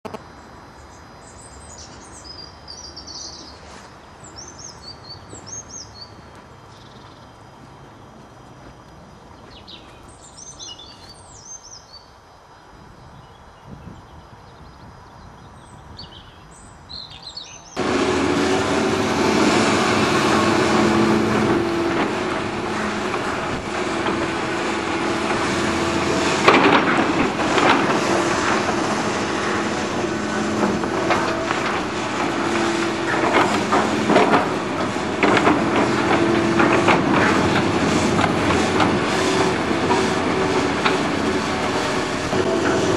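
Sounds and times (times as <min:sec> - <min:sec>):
birds chirping: 0:15.5 - 0:42.9
excavator diesel engine running: 0:17.8 - 0:42.9
rubbish clattering into steel wagons: 0:17.8 - 0:42.9.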